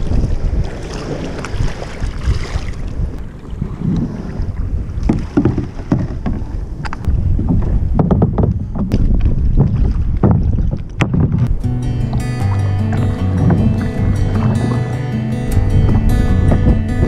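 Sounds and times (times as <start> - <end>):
wind rumbling on microphone: 0.0 - 17.0
knocks and scrapes on kayak hull: 5.0 - 11.6, 13.4 - 14.9.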